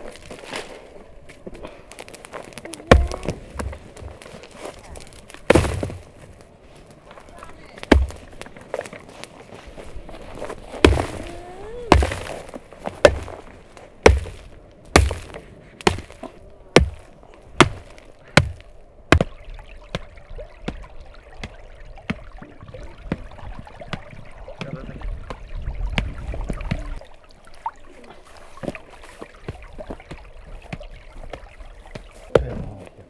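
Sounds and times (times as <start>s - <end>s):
soil crumbling ticks: 0.0s - 27.0s, 27.9s - 33.0s
stream water trickling: 0.0s - 33.0s
clay soil being pounded: 2.1s - 4.3s, 5.0s - 6.2s, 7.8s - 8.5s, 10.7s - 20.1s, 20.7s - 22.2s, 29.4s - 32.9s.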